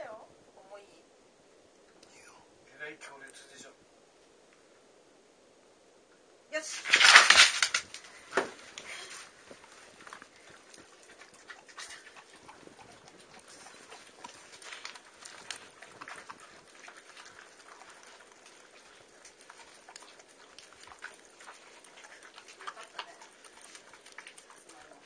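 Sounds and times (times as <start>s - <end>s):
dog licking and chewing: 8.7s - 25.0s.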